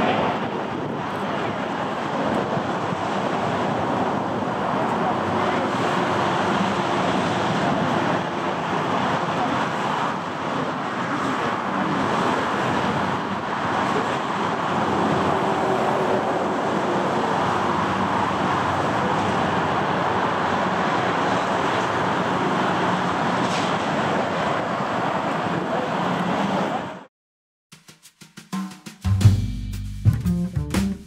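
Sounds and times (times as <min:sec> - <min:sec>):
jet engine roar: 0:00.0 - 0:27.1.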